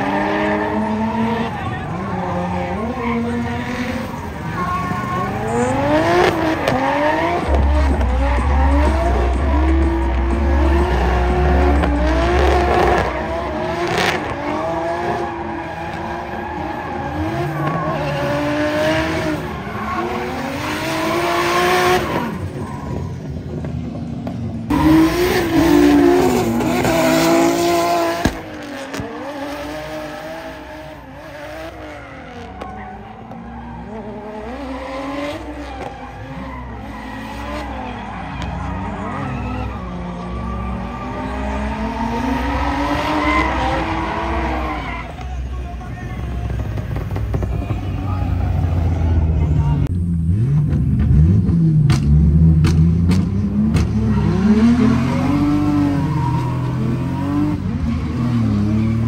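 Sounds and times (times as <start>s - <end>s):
car engines revving hard: 0.0s - 59.0s
tyre squeal: 53.9s - 57.6s.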